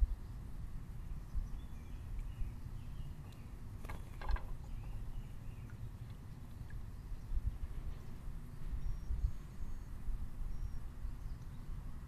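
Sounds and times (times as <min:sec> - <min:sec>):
faint bird chirps: 0:08.5 - 0:11.8.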